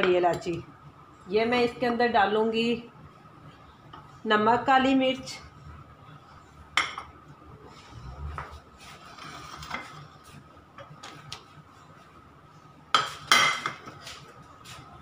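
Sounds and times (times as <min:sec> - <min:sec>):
dishes and utensils clattering: 0:13.0 - 0:14.0.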